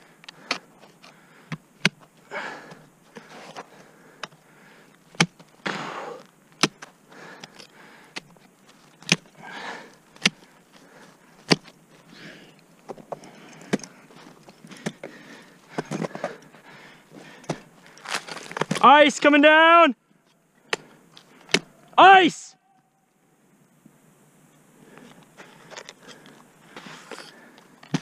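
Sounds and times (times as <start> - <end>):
snow scraping and crunching: 13.1 - 19.2, 26.6 - 27.6.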